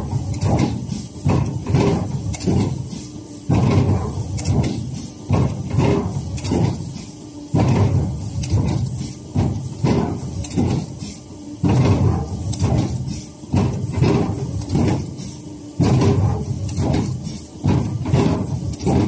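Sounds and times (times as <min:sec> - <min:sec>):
machine mechanical strokes: 0:00.0 - 0:19.0.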